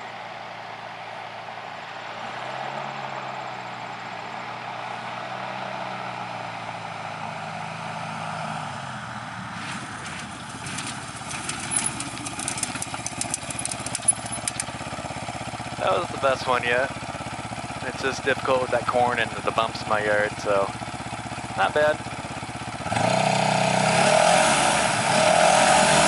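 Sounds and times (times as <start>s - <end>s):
light aircraft engine running: 0.0s - 24.0s
landing gear rattling on grass: 9.6s - 14.7s.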